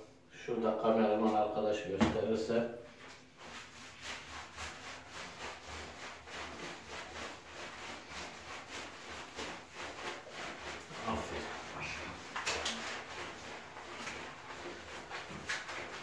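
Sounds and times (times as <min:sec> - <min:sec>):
hands rubbing wet fur: 0:02.9 - 0:16.0.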